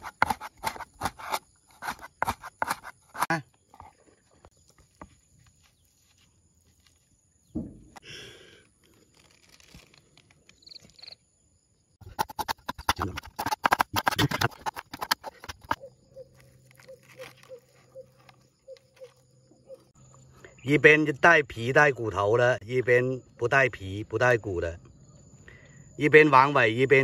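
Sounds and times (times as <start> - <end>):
leaf rustling and crackling: 8.8 - 10.7.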